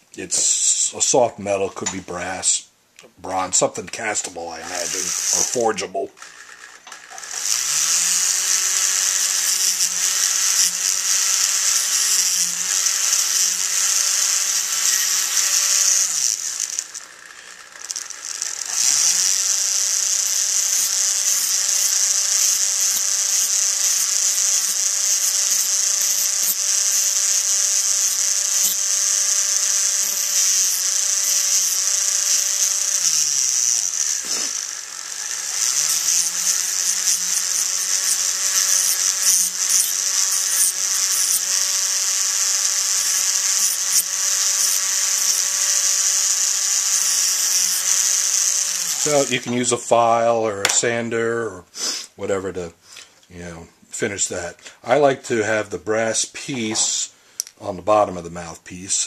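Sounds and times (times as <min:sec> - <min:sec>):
rotary tool high-pitched whine: 0:04.2 - 0:49.7.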